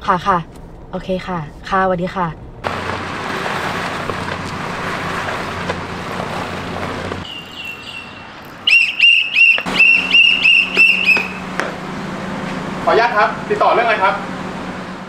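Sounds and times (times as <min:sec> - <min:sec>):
car driving up: 0:02.4 - 0:08.8, 0:09.5 - 0:15.0
whistle blasts: 0:07.3 - 0:11.5.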